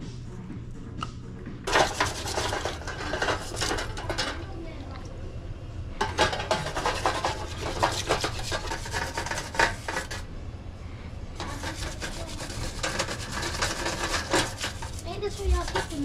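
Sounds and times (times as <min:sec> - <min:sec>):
scratchy scrubbing strokes: 0:01.7 - 0:04.4, 0:06.1 - 0:10.3, 0:11.4 - 0:16.0.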